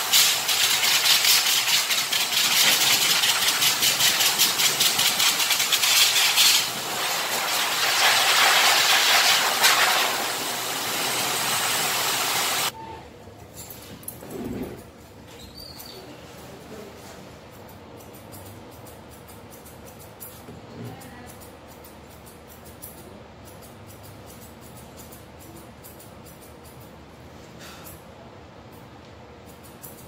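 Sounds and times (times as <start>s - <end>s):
blower dryer rushing air: 0.0s - 12.7s.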